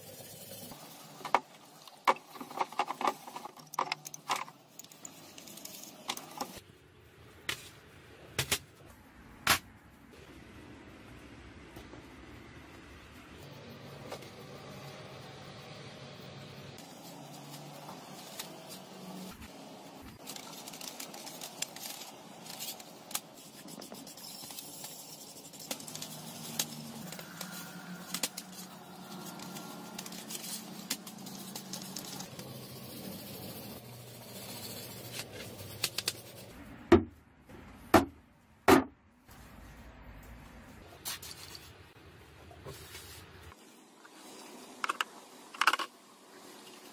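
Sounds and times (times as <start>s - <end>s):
brush scrubbing metal: 16.8s - 36.5s.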